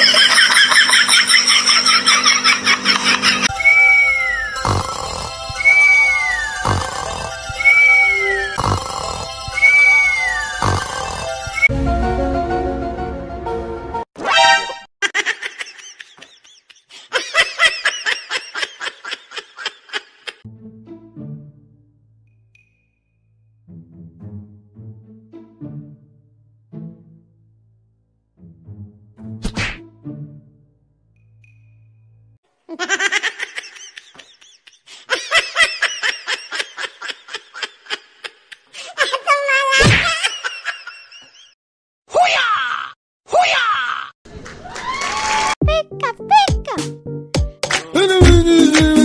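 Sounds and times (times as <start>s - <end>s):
person laughing: 0.0s - 3.5s, 15.0s - 20.4s, 32.7s - 41.5s, 47.7s - 49.0s.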